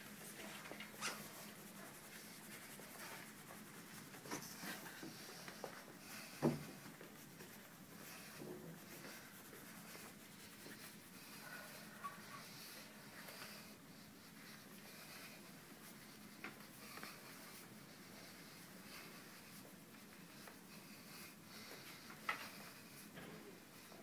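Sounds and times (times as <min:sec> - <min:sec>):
hands rubbing on clothing: 0:00.0 - 0:24.0.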